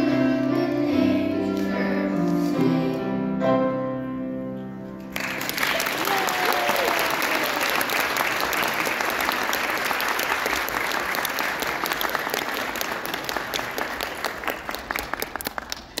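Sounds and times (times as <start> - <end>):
audience applauding: 5.1 - 16.0.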